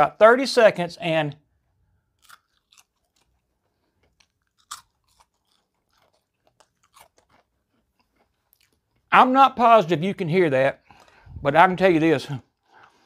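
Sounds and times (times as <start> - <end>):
faint chewing of crispy fries: 2.0 - 9.1, 10.8 - 11.4, 12.3 - 13.0.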